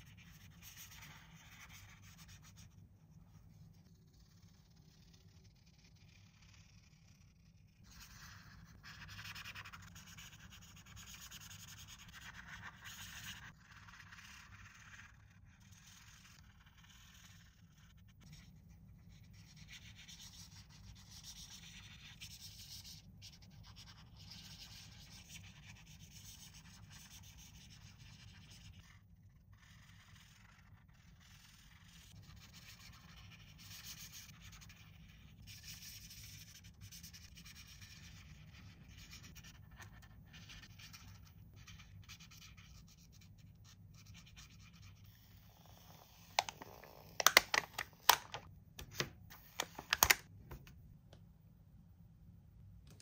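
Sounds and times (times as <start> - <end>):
toy packaging rubbing and scratching: 43.4 - 50.3.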